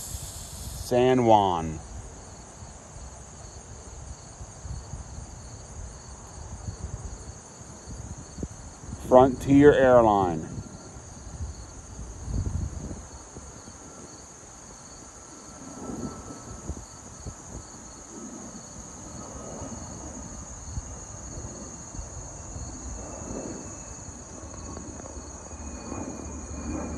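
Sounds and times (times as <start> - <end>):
insects chorus: 0.0 - 26.9
distant jet airliner rumble: 0.8 - 2.2, 7.8 - 26.9.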